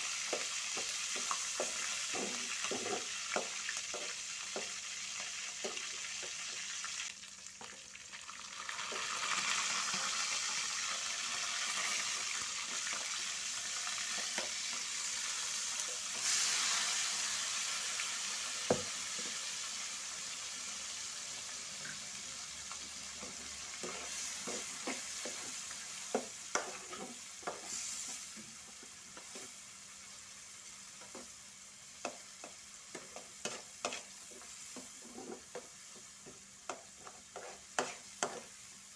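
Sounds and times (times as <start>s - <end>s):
hot oil sizzling: 0.0s - 38.9s
spatula scraping taps: 23.2s - 27.7s, 32.0s - 38.5s
spatula knocking on wok: 36.3s - 38.5s.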